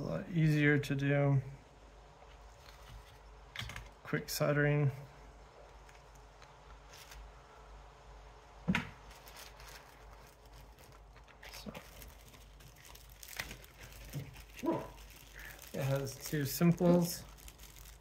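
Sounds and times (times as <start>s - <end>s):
room hum: 0.0s - 18.0s.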